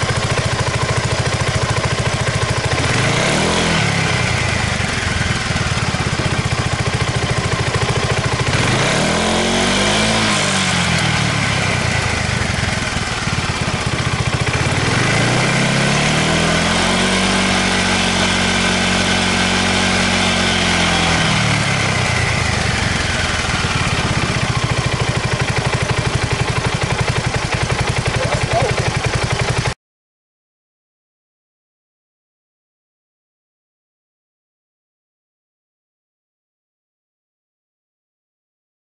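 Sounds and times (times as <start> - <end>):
scooter engine idling and revving: 0.0 - 29.8.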